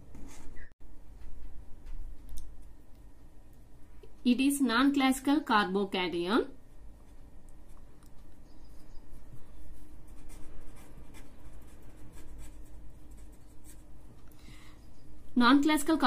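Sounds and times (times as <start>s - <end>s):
marker pen scratching on paper: 8.6s - 14.2s.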